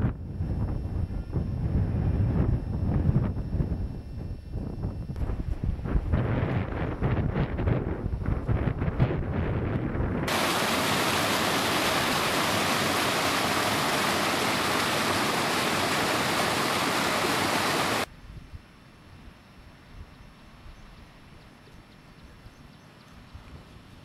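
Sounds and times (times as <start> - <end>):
wind buffeting microphone: 0.0 - 18.6
small waterfall rushing: 10.3 - 18.1.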